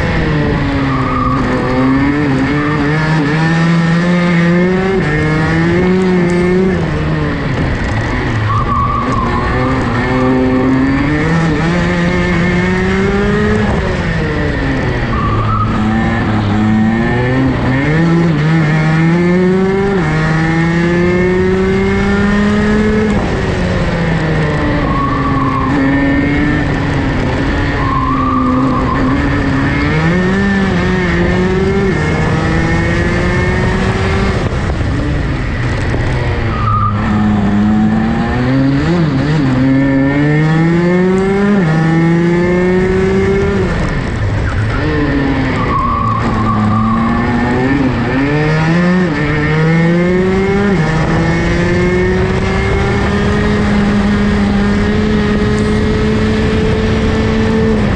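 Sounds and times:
kart engine revving: 0.0s - 57.9s.

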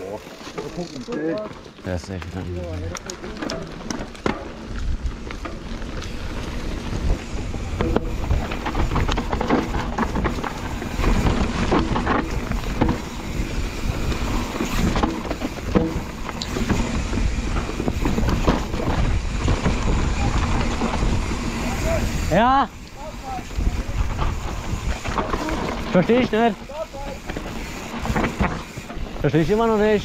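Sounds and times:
bike knocking and rattling: 0.0s - 30.0s
bike tyres rumbling on dirt: 0.0s - 30.0s
wind on microphone: 6.1s - 25.9s.

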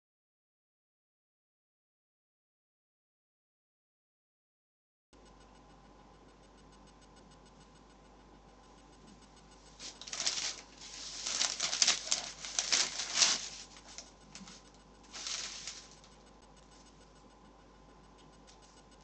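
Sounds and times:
paper bag rustling and crinkling: 9.8s - 16.1s.

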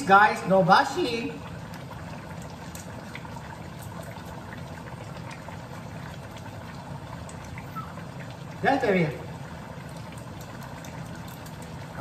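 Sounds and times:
low steady hum: 0.0s - 12.0s
stew bubbling and hissing: 0.8s - 12.0s.

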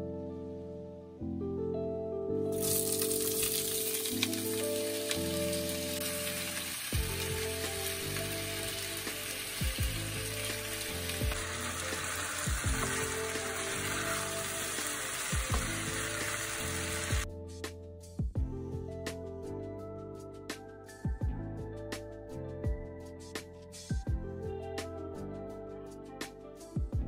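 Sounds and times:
potatoes sizzling in oil: 2.6s - 17.2s.

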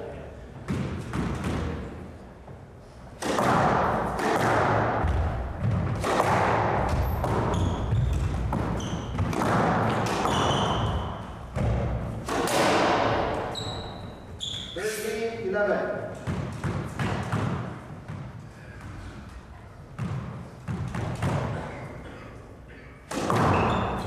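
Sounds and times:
squash ball hitting racquets and walls: 0.4s - 14.8s, 15.8s - 24.0s
shoes squeaking on wooden floor: 6.9s - 11.4s, 13.3s - 15.0s, 23.3s - 24.0s.

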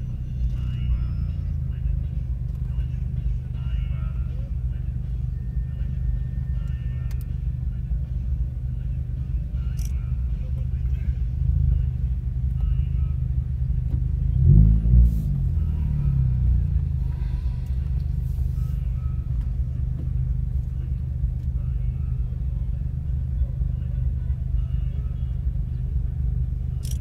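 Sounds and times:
car engine low rumble: 0.0s - 27.0s.

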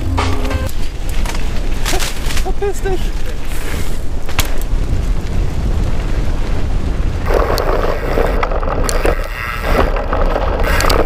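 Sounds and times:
tyres on loose dirt: 0.0s - 11.0s
wind rushing over microphone: 0.6s - 11.0s
bike rattling knocks: 7.3s - 11.0s.

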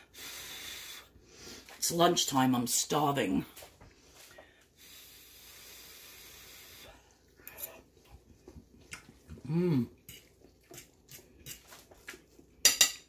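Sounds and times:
fork scraping a pan: 7.5s - 7.8s, 10.0s - 11.9s
person humming: 9.4s - 10.0s.

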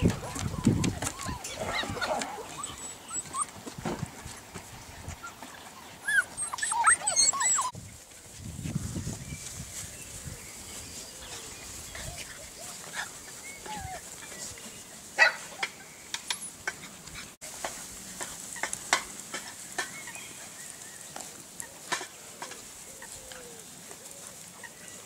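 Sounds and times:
puppies rustling through grass: 0.0s - 25.0s
puppy squeaks: 0.3s - 2.0s, 2.6s - 3.5s, 6.0s - 7.7s.

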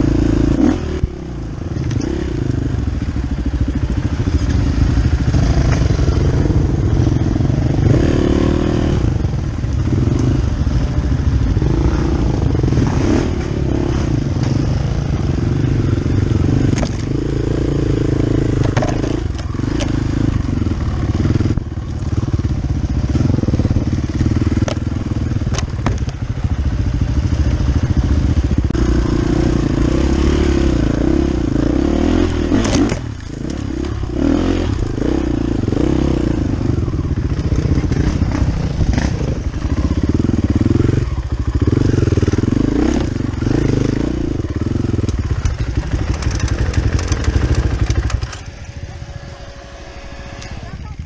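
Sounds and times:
vehicle engine running: 0.0s - 51.0s.

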